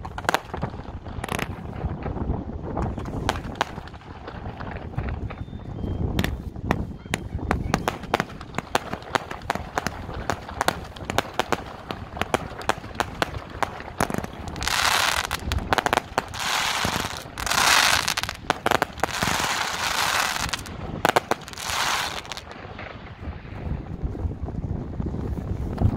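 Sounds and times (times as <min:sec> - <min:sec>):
firework bangs: 0:00.0 - 0:24.1
firework dense crackling: 0:00.0 - 0:25.9.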